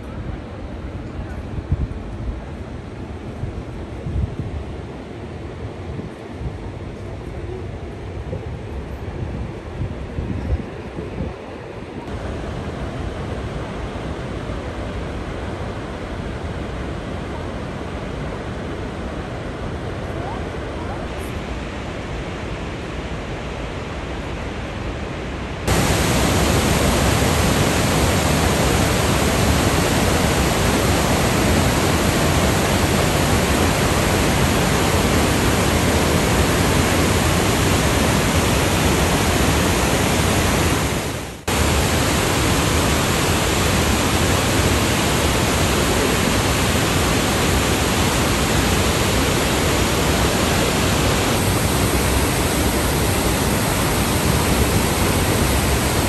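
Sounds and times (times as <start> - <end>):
waterfall rushing: 25.7 - 56.0.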